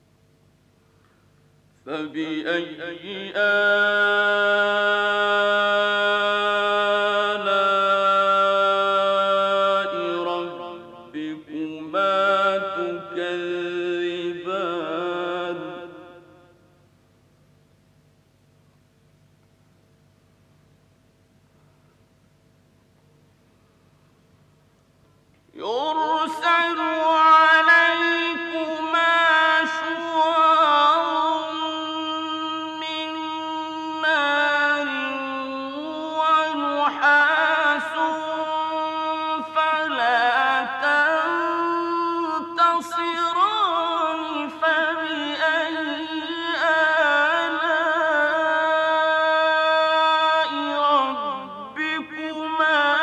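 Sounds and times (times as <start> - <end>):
man reciting melodically: 1.8 - 16.5, 25.5 - 53.0.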